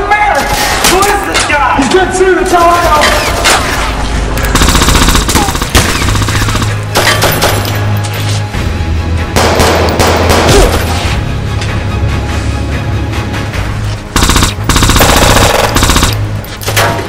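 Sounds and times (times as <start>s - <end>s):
background music with low bass: 1.6s - 17.0s
automatic gunfire: 4.5s - 7.6s, 14.2s - 16.2s.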